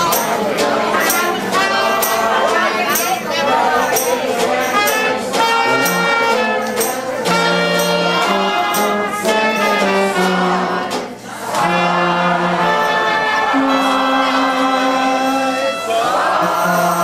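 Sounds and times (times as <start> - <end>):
banjo strumming: 0.0 - 17.0
trumpet: 0.0 - 17.0
tuba bass notes: 0.0 - 17.0
clarinet: 4.8 - 11.0, 11.6 - 17.0.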